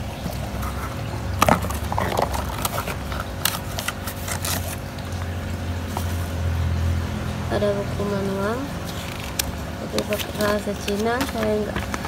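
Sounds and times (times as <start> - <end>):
steady low hum: 0.0 - 12.0
cardboard flaps rustling and scraping: 0.2 - 6.4.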